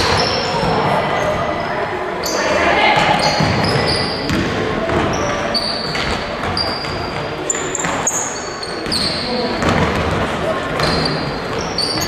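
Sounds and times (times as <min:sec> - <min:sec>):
echoing voices: 0:00.0 - 0:12.0
basketball bouncing: 0:03.0 - 0:05.2, 0:09.6 - 0:11.6.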